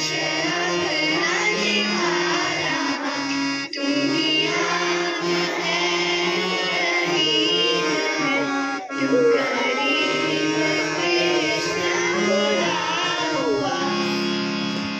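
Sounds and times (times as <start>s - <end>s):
harmonium chords: 0.0s - 14.9s
girl singing into a microphone: 6.4s - 14.3s.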